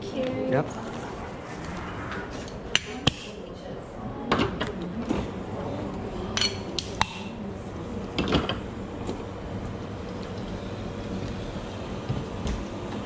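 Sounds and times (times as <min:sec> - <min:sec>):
steady low hum: 0:00.0 - 0:06.4.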